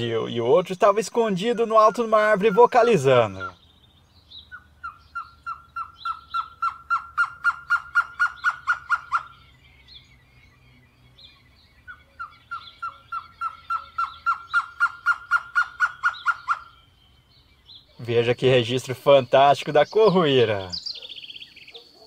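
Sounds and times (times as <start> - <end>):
bird hooting notes: 1.3 - 3.7, 4.4 - 9.5, 11.8 - 17.0.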